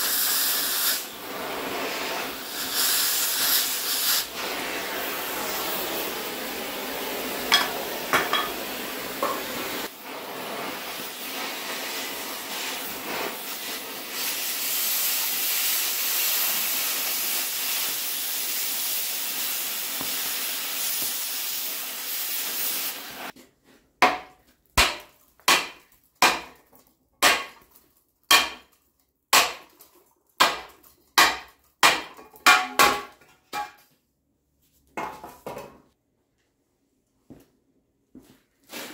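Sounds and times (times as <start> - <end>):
cutting torch hissing: 0.0 - 23.3.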